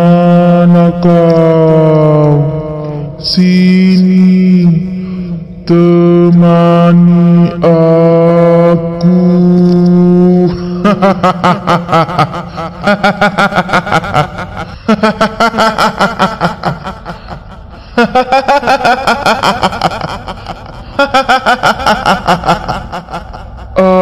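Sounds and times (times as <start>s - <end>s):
steady low drone: 0.0s - 24.0s
high-pitched cackling laughter: 10.5s - 24.0s.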